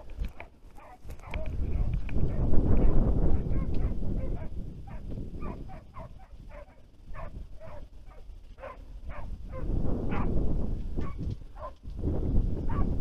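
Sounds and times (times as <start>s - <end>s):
wind buffeting microphone: 0.0s - 13.0s
hounds baying and yelping: 0.2s - 10.4s, 11.0s - 11.8s, 12.7s - 13.0s.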